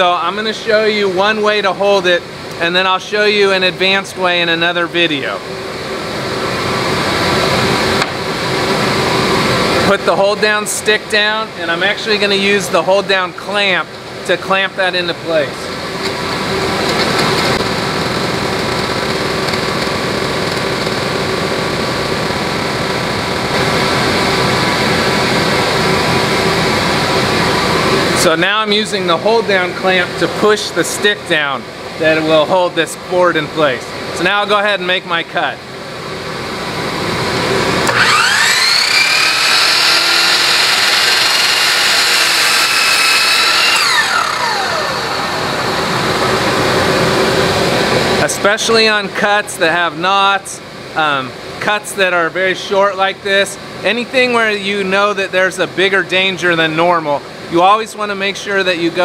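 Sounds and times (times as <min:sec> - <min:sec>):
machine droning: 0:05.1 - 0:30.6, 0:35.6 - 0:48.4
miter saw cutting wood: 0:37.8 - 0:47.4.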